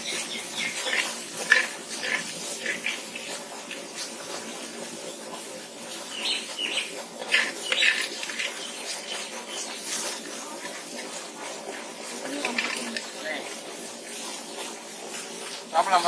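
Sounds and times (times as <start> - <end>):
metal ladle scraping a pot: 0.0 - 4.5, 7.1 - 13.2.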